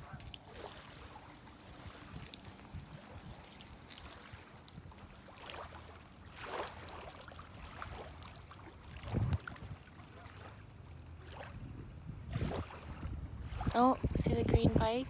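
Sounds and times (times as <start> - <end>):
small waves lapping: 0.0 - 15.0
wind on microphone: 8.9 - 10.0, 11.4 - 15.0.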